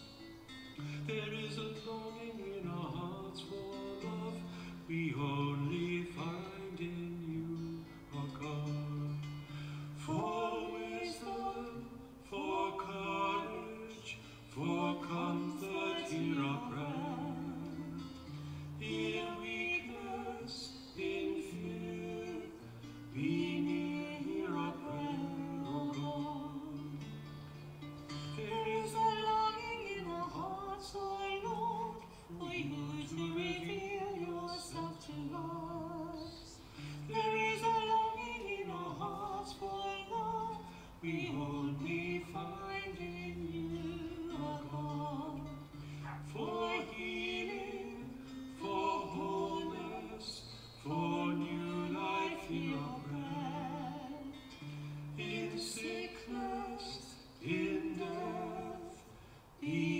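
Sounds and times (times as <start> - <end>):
plucked guitar: 0.0 - 59.9
woman singing a hymn: 10.0 - 18.1, 18.8 - 27.0, 28.4 - 54.4, 55.1 - 59.9.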